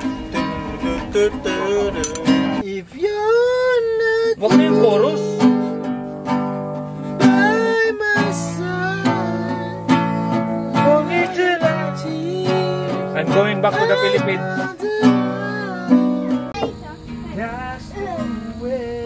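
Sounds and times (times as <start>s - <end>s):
nylon-string guitar strummed chords: 0.0s - 2.7s, 3.3s - 18.7s
person singing: 7.2s - 16.6s.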